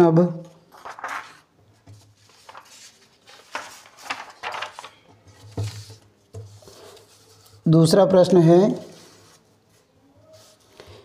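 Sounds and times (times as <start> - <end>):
paper sheets rustling: 0.7 - 7.6.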